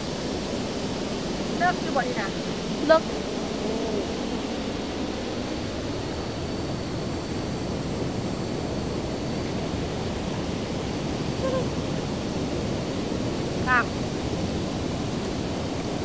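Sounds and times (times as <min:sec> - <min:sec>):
waterfall roaring: 0:00.0 - 0:05.0, 0:09.4 - 0:16.0.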